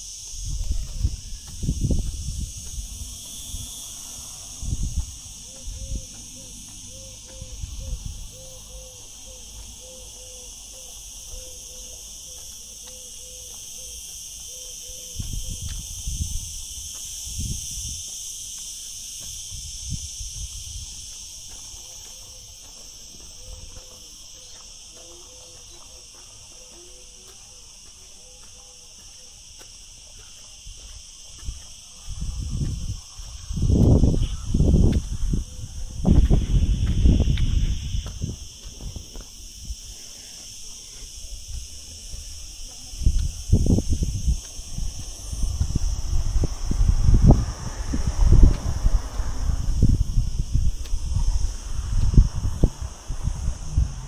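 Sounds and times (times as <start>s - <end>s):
insects chirring: 0.0s - 54.0s
low rumbles: 43.2s - 54.0s.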